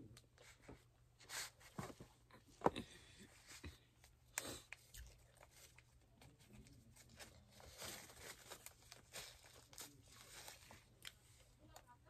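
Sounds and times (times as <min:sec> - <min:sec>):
paper wrapper crinkling and tearing: 0:04.6 - 0:11.2.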